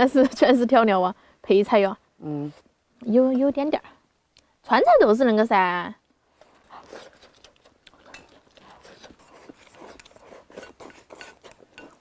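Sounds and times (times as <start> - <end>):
person chewing and slurping: 6.4 - 12.0.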